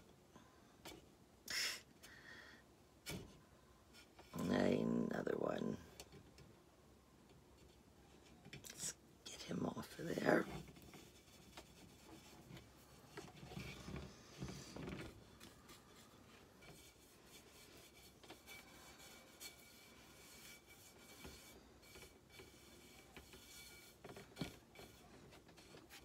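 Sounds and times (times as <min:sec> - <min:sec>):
paintbrush rubbing: 0:10.1 - 0:26.0.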